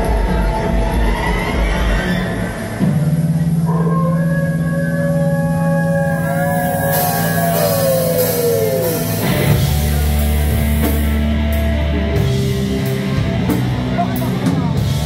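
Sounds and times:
distorted guitars and bass: 0.0 - 15.0
drums and cymbals: 0.0 - 15.0
ambient tones sliding down in pitch: 3.6 - 10.8.

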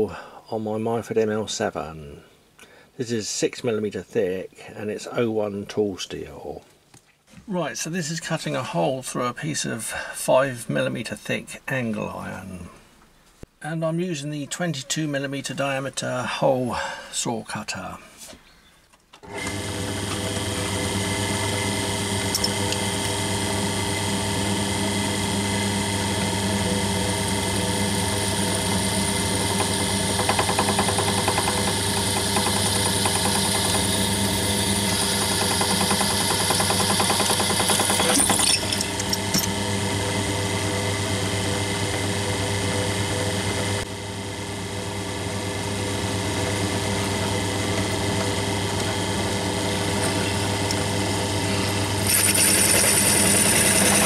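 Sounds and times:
bench drill motor hum: 19.2 - 54.0
hole saw cutting metal: 22.1 - 23.1, 27.3 - 39.6, 46.3 - 54.0.

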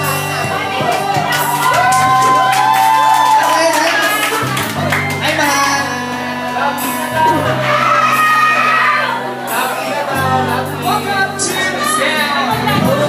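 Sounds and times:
backing track with bass notes: 0.0 - 13.0
man singing through pa: 9.1 - 13.0.

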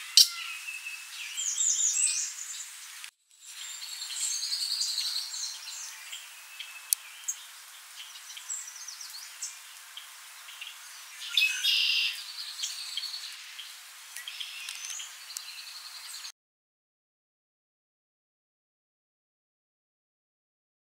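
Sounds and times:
buzzy bird trill: 0.0 - 2.6, 3.4 - 16.3
songbirds chirping and trilling: 0.0 - 16.3.

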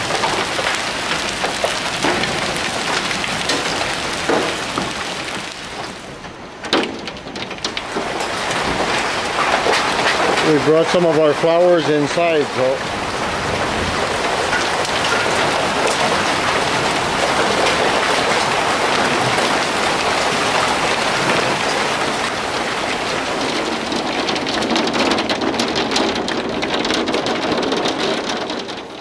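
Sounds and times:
hail and heavy rain: 0.0 - 29.0
hailstones ticking on hard surfaces: 0.0 - 29.0.

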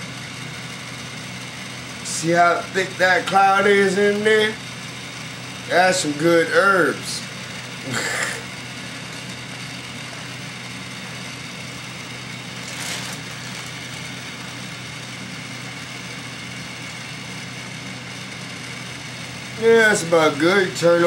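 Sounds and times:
vaporizer fan humming: 0.0 - 21.0
brief rustling: 12.6 - 13.8.

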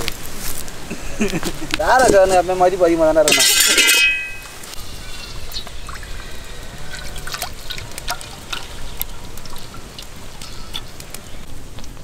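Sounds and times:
small plinks and drips: 5.5 - 11.3
cooking oil pouring and splashing: 5.5 - 11.4.

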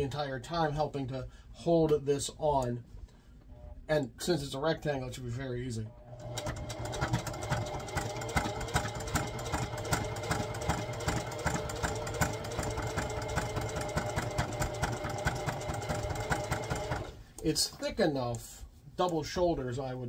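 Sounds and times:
electric sewing machine stitching: 6.0 - 17.2.

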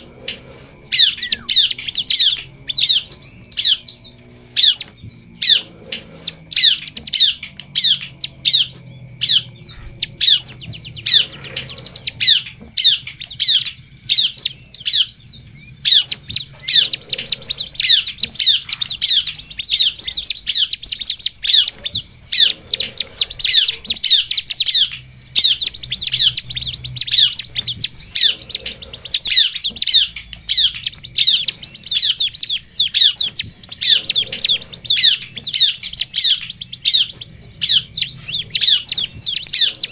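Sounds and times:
bird singing fast chirps: 0.0 - 39.9
thin steady high tone: 0.0 - 39.9.

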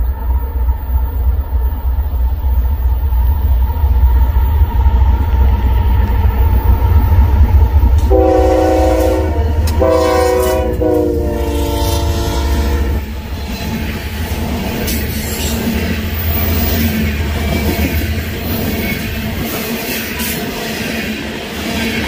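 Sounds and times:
train wheel clatter: 6.5 - 22.0
train air horn blasts: 8.1 - 13.0.

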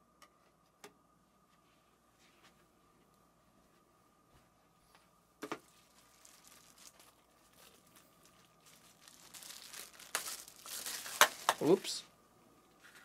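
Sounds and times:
packaging crinkling: 5.5 - 12.0.

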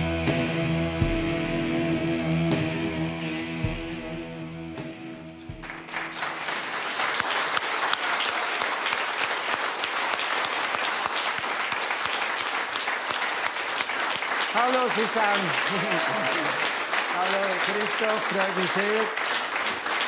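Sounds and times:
studio audience applauding: 5.4 - 20.0.

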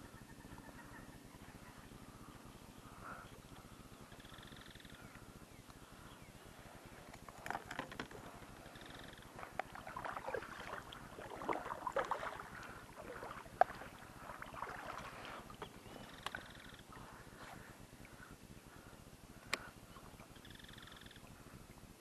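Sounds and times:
paddle splashing in water: 9.3 - 17.0.

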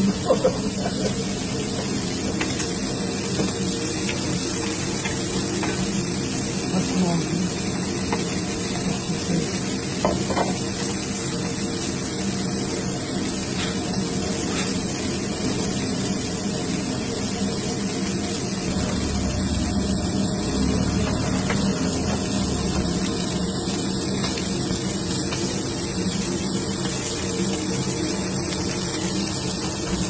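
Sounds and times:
chicken sizzling on a griddle: 0.0 - 30.0
low hum: 18.4 - 24.6.

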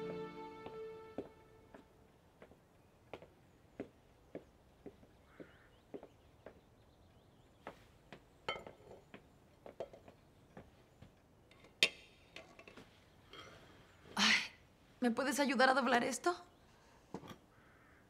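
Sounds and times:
footsteps: 0.0 - 2.6
metal fireplace screen clinking: 11.5 - 13.8.

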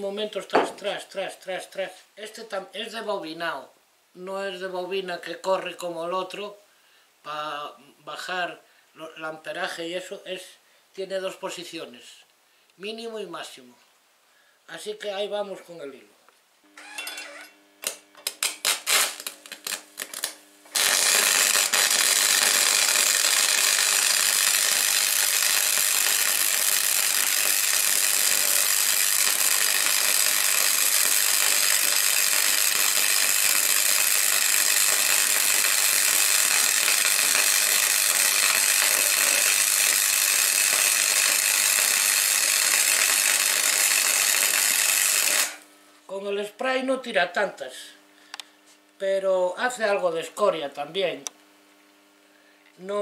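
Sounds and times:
welding arc: 16.8 - 45.7.

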